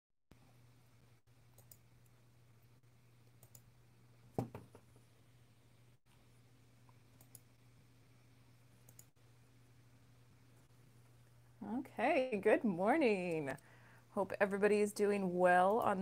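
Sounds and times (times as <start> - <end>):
low steady hum: 0.3 - 16.0
faint clicks: 1.6 - 2.1, 3.2 - 3.6, 6.8 - 7.5, 8.8 - 9.1.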